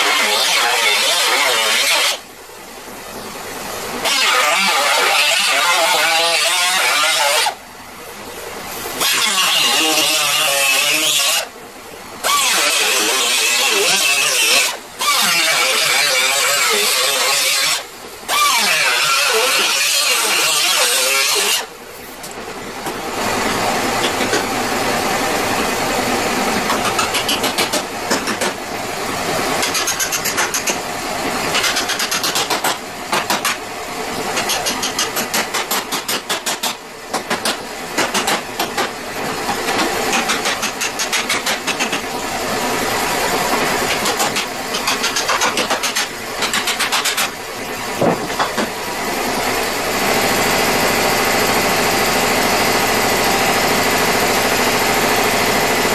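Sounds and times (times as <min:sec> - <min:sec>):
air grinder grinding steel: 0:00.0 - 0:02.2, 0:04.0 - 0:07.6, 0:09.0 - 0:11.5, 0:12.2 - 0:21.7.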